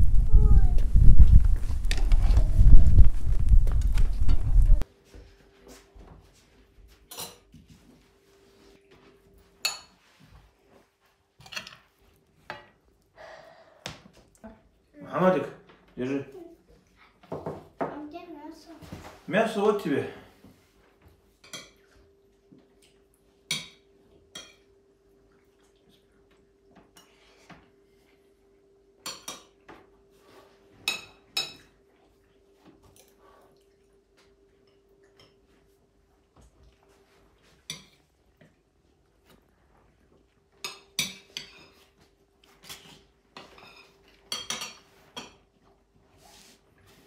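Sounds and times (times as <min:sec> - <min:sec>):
dishes and cutlery clinking: 0:06.9 - 0:07.7, 0:09.5 - 0:10.2, 0:11.4 - 0:12.8, 0:21.4 - 0:22.0, 0:23.4 - 0:24.8, 0:29.0 - 0:31.8, 0:37.5 - 0:38.1, 0:40.5 - 0:45.8.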